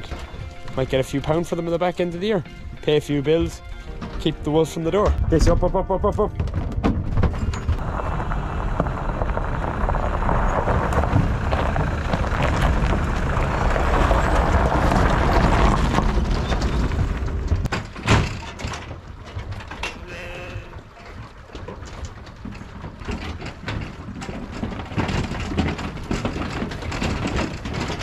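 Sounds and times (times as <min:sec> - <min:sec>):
tyres crunching on gravel: 0:00.0 - 0:18.0
truck engine rumble: 0:00.0 - 0:28.0.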